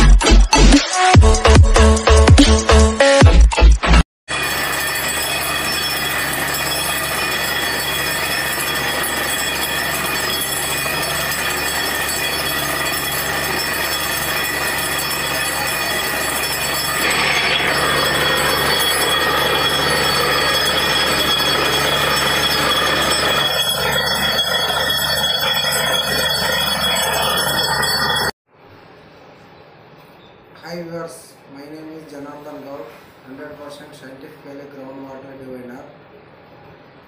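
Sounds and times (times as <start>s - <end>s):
drilling rig running: 4.3s - 28.4s.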